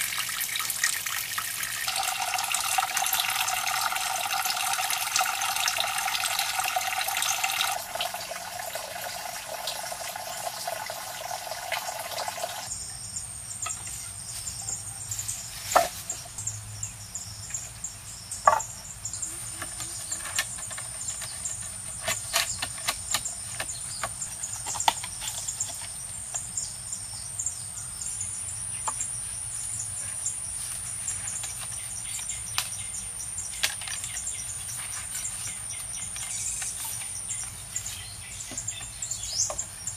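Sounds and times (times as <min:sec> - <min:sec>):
water splashing into pond: 0:00.0 - 0:12.7
wooden poles knocking: 0:18.4 - 0:18.7.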